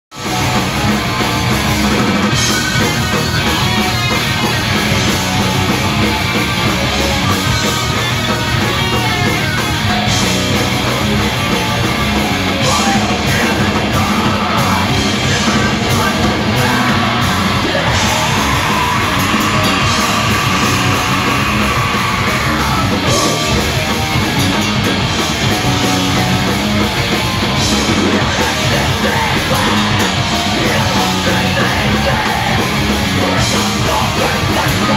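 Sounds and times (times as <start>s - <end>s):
distorted electric guitars: 0.1s - 34.9s
pounding drums: 0.2s - 34.9s
shouted vocals: 12.4s - 24.3s, 27.8s - 34.9s.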